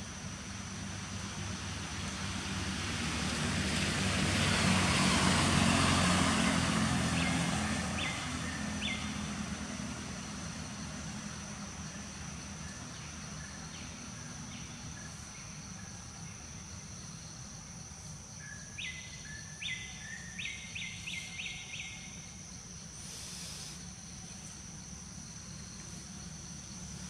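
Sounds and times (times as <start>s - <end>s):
insect drone: 0.0s - 27.0s
brief hiss: 23.0s - 24.0s.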